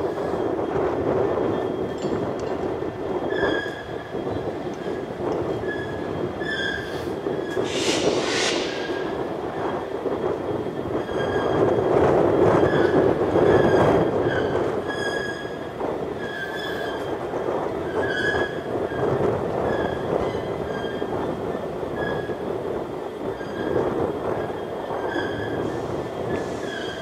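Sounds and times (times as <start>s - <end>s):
diesel locomotive rumbling: 0.0s - 14.9s.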